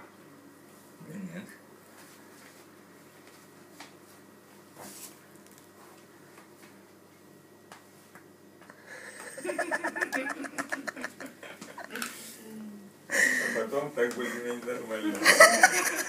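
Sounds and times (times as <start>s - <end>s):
person chuckling: 8.9s - 12.2s, 15.2s - 16.0s.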